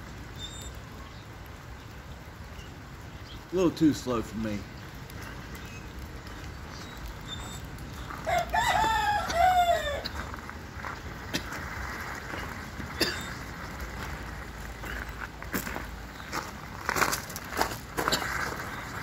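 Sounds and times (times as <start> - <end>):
rooster crowing: 8.2 - 10.2.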